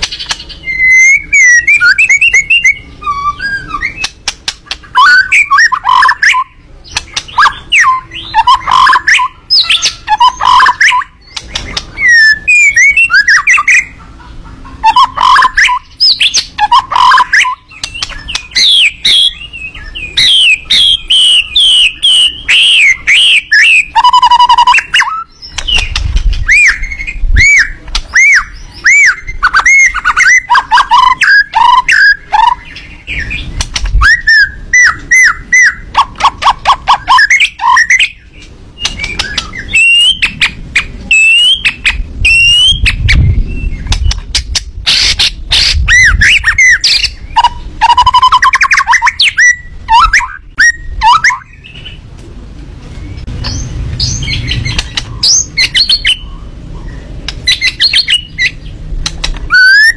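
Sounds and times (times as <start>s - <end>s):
songbird whistling and trilling: 0.0s - 14.0s, 14.8s - 52.0s, 53.0s - 59.9s
low rumbles: 41.9s - 47.8s, 49.6s - 59.6s.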